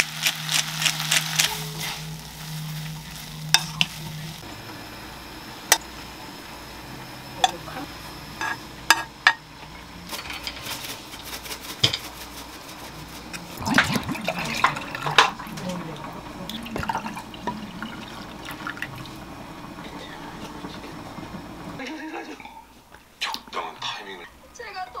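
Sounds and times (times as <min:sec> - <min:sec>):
low hum: 0:00.0 - 0:22.9
faint sizzle: 0:00.0 - 0:25.0
spaghetti tossed in frying pan: 0:10.1 - 0:15.3.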